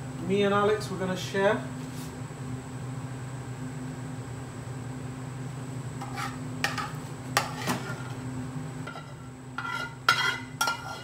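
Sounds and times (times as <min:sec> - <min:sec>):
spatula scraping metal pan: 0:06.0 - 0:08.2, 0:08.9 - 0:11.0.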